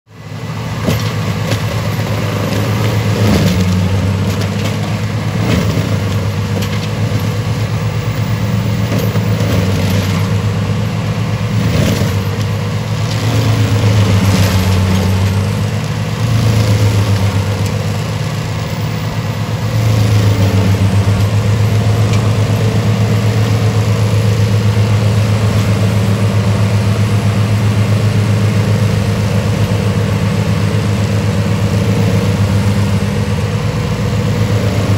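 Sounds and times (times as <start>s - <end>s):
tractor engine hum: 0.1s - 34.9s
mulcher grinding: 0.7s - 34.9s.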